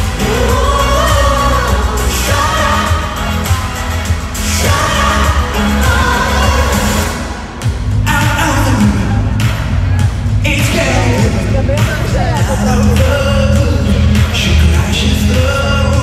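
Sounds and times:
man singing into microphone: 0.0 - 3.3, 4.6 - 7.2, 10.4 - 16.0
backing track with heavy bass: 0.0 - 16.0.

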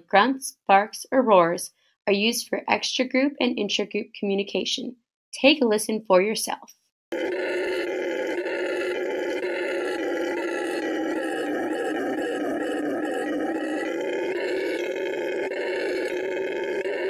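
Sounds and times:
howler monkey howling: 7.1 - 17.0.

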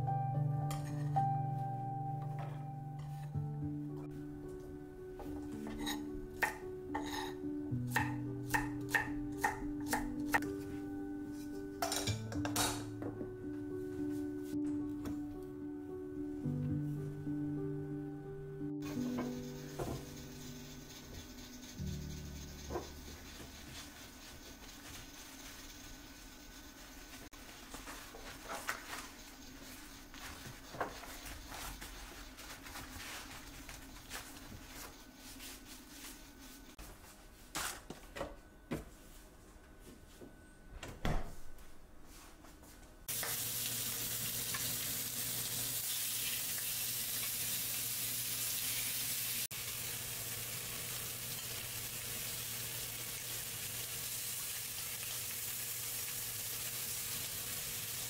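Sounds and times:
paper towel rustling and crinkling: 27.3 - 37.9
meat sizzling in a frying pan: 43.1 - 58.0.

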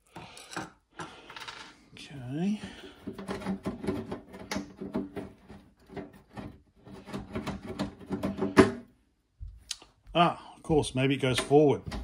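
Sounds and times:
metal cover rattling and scraping: 2.7 - 8.6.

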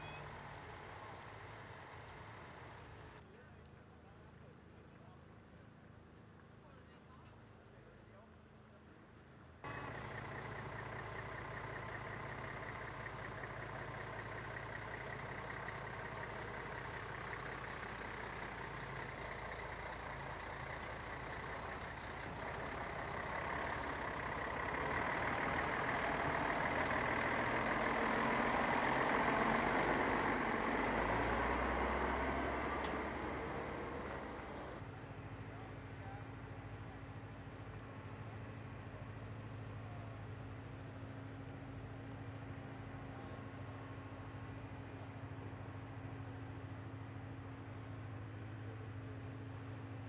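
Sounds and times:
diesel truck engine running: 0.0 - 3.2, 9.7 - 35.5.

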